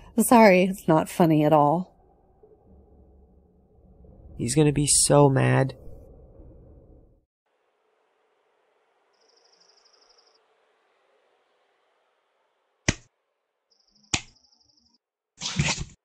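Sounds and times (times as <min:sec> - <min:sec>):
insect-like chirping trills: 0:09.1 - 0:10.4, 0:13.7 - 0:15.0.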